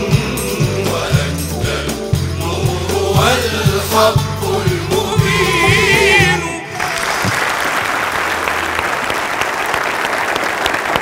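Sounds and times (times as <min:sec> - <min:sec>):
choir singing with instruments: 0:00.0 - 0:07.5
audience applause: 0:06.7 - 0:11.0.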